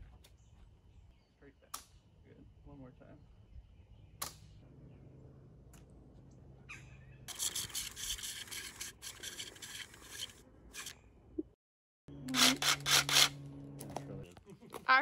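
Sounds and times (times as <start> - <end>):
chalk line reel rasping whirr: 7.3 - 11.0, 12.2 - 13.4.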